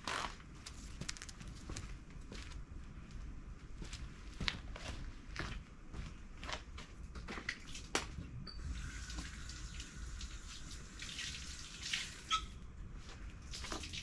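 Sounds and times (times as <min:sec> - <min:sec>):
water running and splashing: 0:08.7 - 0:12.4, 0:13.5 - 0:14.0.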